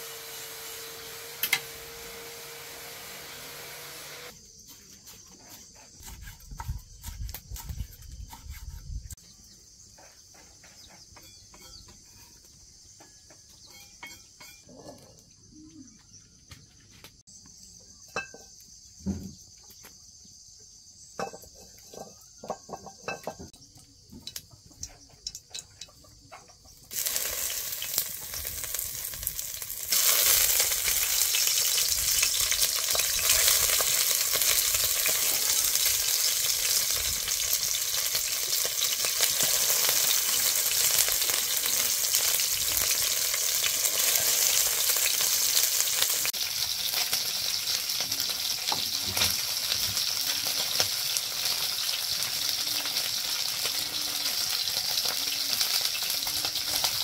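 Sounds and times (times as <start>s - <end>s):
food sizzling in hot oil: 0.0s - 4.4s, 26.9s - 57.0s.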